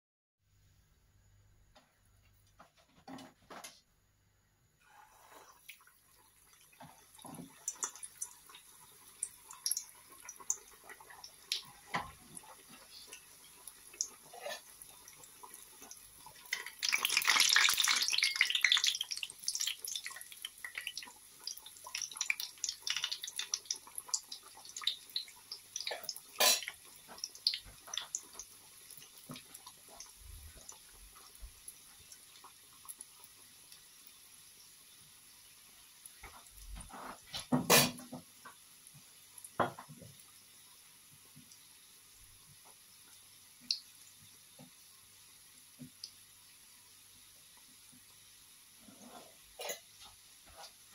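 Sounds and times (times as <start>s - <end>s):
oil crackling and popping: 5.6s - 35.0s.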